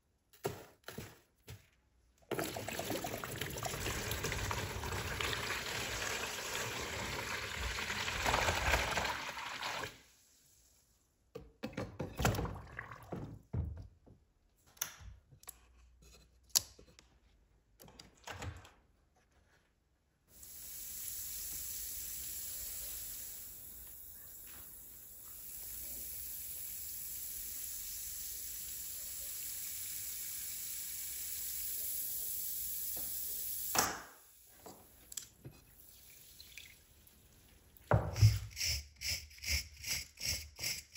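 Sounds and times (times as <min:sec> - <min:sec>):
water pouring into plastic tub: 0:02.3 - 0:10.1, 0:12.3 - 0:13.4
high fizzing hiss: 0:20.3 - 0:34.5.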